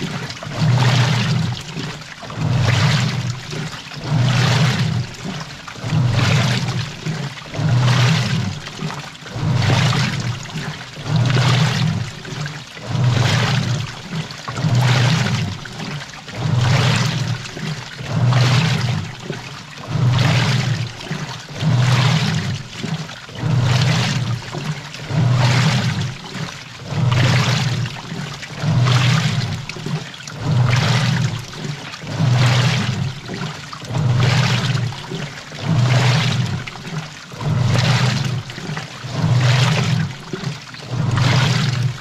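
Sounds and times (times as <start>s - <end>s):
washing machine motor humming: 0.0s - 42.0s
water sloshing and splashing: 0.0s - 42.0s.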